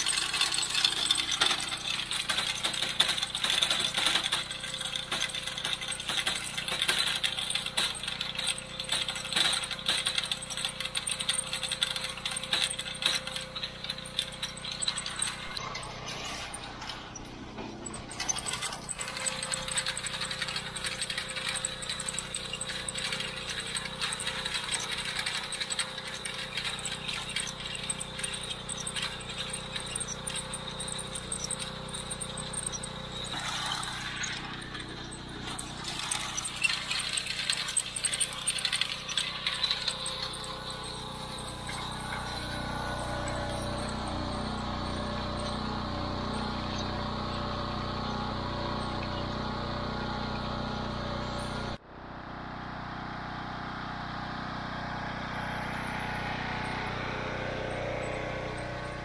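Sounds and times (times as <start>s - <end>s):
chain clattering over sprockets: 0.0s - 51.8s
engine running steadily: 0.0s - 59.0s.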